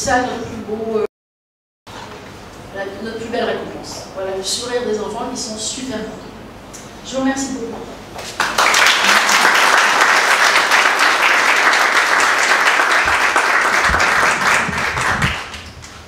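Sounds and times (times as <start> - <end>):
audience applauding: 8.2 - 15.7.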